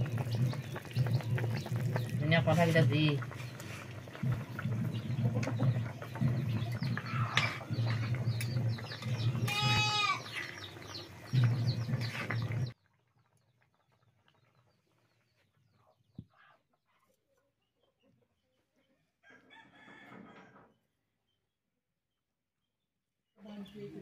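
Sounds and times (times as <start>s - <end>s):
low rumble: 0.0s - 10.0s
goat bleating: 9.4s - 10.3s.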